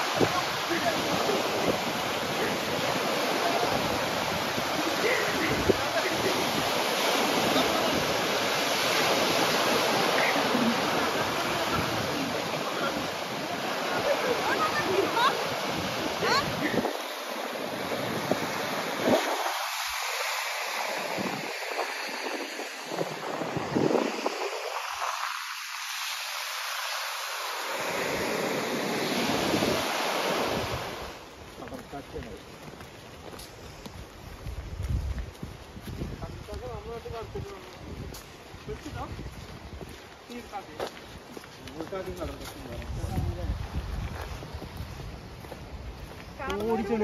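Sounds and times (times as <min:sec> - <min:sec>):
wind on microphone: 0:00.0 - 0:26.2, 0:27.9 - 0:47.0
small waves breaking: 0:00.0 - 0:34.6
sea surf washing on beach: 0:00.0 - 0:47.0.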